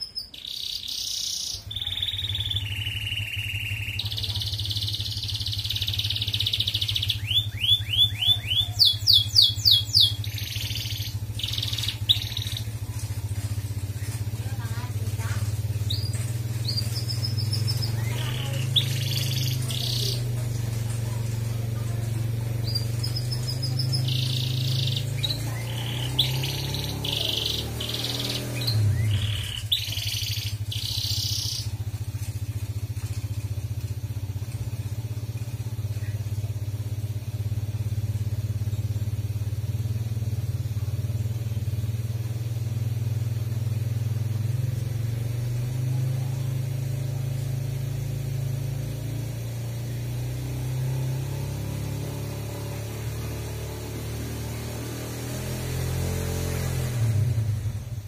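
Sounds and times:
canary singing: 0.0 - 33.4
steady low hum: 1.6 - 56.6.

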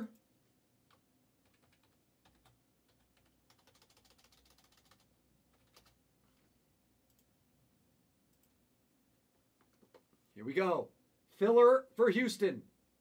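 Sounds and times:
typing on computer keyboard: 0.9 - 6.0, 7.1 - 7.3.

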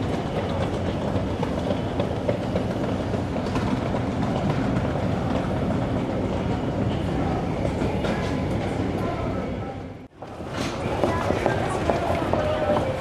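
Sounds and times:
wheels clattering over track: 0.0 - 9.0
train rumbling on rails: 0.0 - 13.0.

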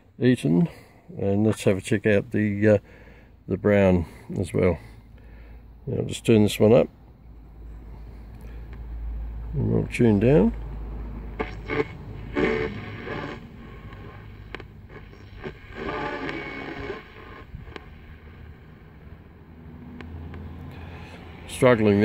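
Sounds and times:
shortwave radio static: 9.5 - 20.1, 20.7 - 22.0
snatches of radio station audio: 9.6 - 22.0
sharp clicks: 11.4 - 18.1, 19.9 - 20.7.

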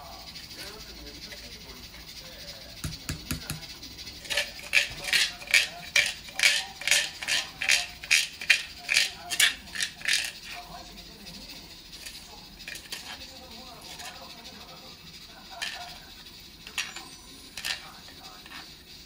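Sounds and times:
plastic container tapping on bowl: 2.8 - 3.7.

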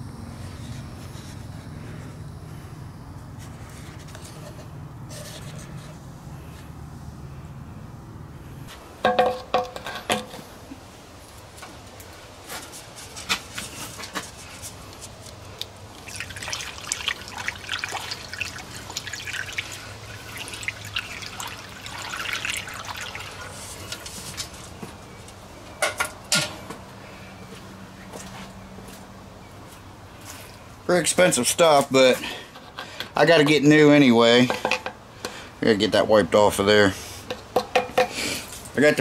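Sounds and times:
liquid pouring into metal tank: 15.9 - 24.5.

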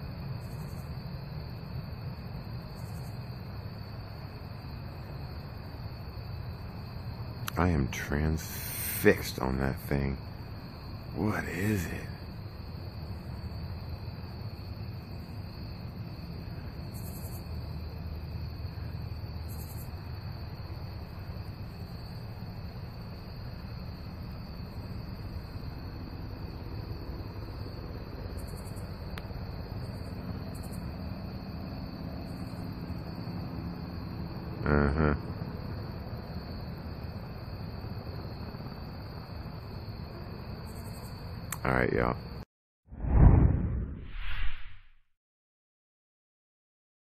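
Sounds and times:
crickets trilling: 0.0 - 42.4
low rumble: 43.0 - 45.0.

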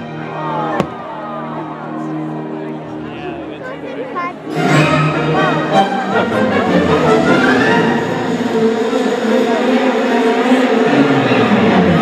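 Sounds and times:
music playing: 0.0 - 12.0
firework bang: 0.8 - 1.1.

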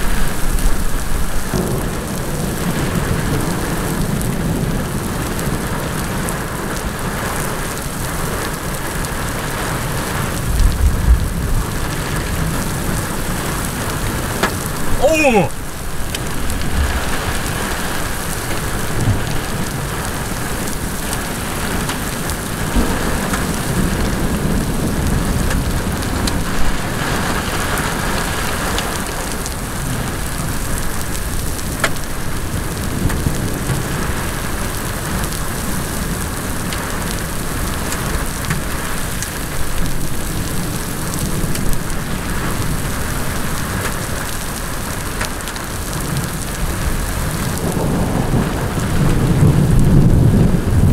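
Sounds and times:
heavy rain on paved road: 0.0 - 50.9
thunder rumble: 10.4 - 13.6, 14.2 - 27.3, 47.4 - 50.9.

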